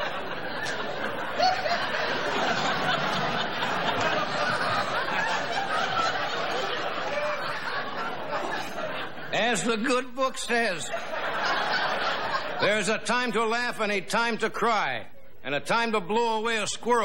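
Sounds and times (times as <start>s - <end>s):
audience laughing: 0.0s - 13.5s.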